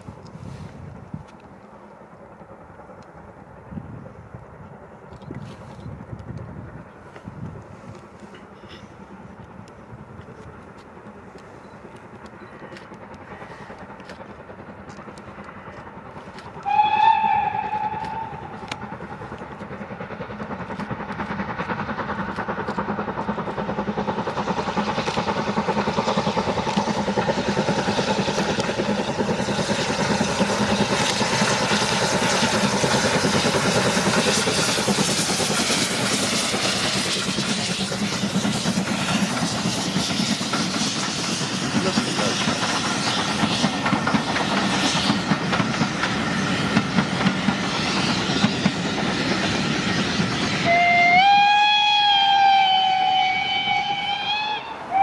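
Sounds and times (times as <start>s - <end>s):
steam locomotive exhaust beats: 0.0s - 55.0s
train coaches rolling by: 0.0s - 55.0s
steam locomotive whistle: 16.6s - 18.8s, 50.5s - 55.0s.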